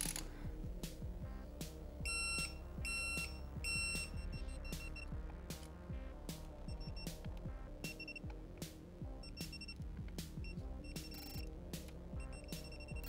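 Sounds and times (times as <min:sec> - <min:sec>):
torque wrench beeping: 0:02.1 - 0:05.1, 0:07.8 - 0:08.3, 0:10.8 - 0:11.5, 0:12.2 - 0:13.0.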